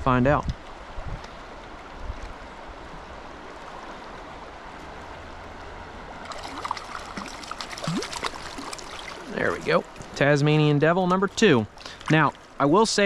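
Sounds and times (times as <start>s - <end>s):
stream water running: 0.0s - 13.0s
fish splashing at surface: 6.3s - 9.4s.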